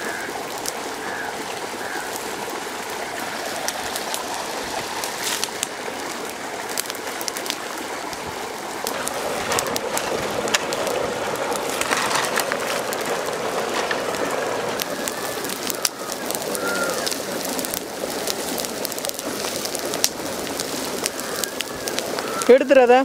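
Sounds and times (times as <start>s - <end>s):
bird calling: 0.0s - 2.3s, 10.0s - 17.8s, 20.8s - 23.0s
fire crackling and popping: 0.0s - 23.0s.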